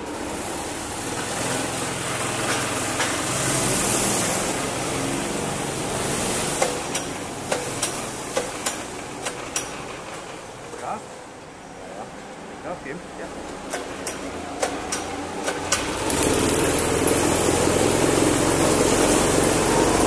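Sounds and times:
go-kart engines droning: 0:00.0 - 0:08.3, 0:13.3 - 0:20.0.

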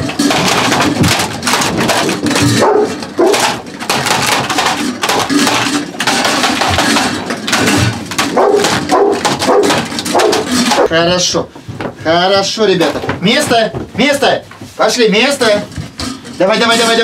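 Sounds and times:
metal bowls clinking: 0:00.0 - 0:10.9
puppies crunching food: 0:00.0 - 0:11.2
puppy yelps: 0:02.5 - 0:03.5, 0:08.3 - 0:10.9.

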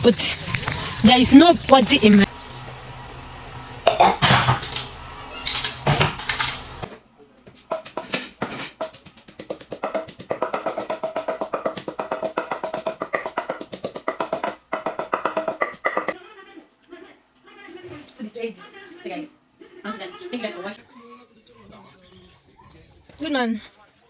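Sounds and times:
low hum: 0:00.0 - 0:06.9
background music with drum beat: 0:07.7 - 0:16.2.

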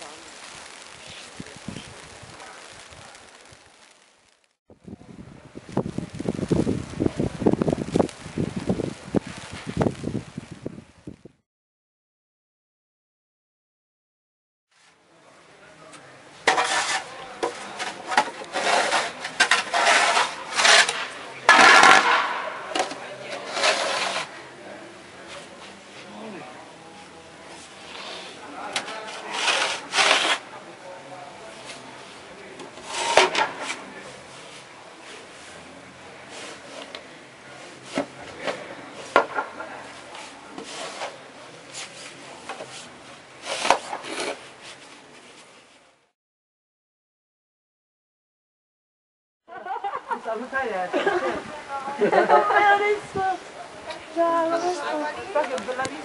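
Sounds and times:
rasping blizzard snow: 0:00.0 - 0:11.2, 0:16.5 - 0:24.5, 0:27.6 - 0:30.6
snow shovel scraping snow: 0:16.5 - 0:24.4, 0:27.6 - 0:30.4, 0:32.8 - 0:34.7, 0:40.1 - 0:44.9.

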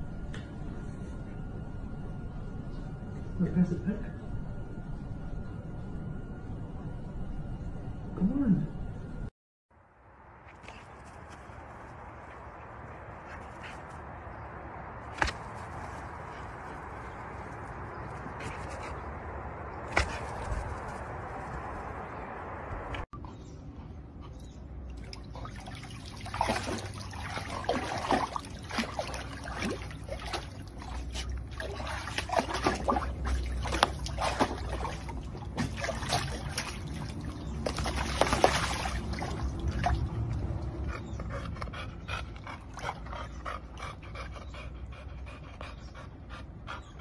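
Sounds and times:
dog splashing in water: 0:25.0 - 0:40.6.

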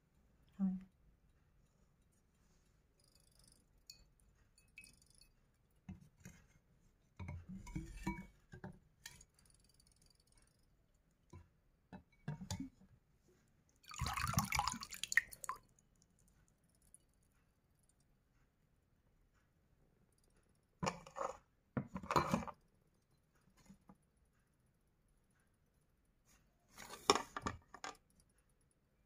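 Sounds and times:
water splashing in a bowl: 0:13.8 - 0:15.7.

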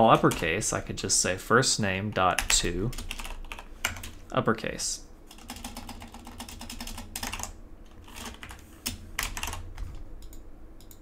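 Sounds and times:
keyboard typing: 0:02.3 - 0:04.2, 0:05.3 - 0:11.0.

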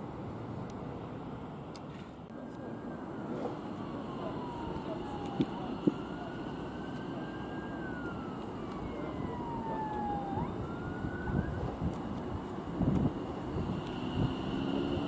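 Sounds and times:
siren wailing: 0:02.6 - 0:11.9.

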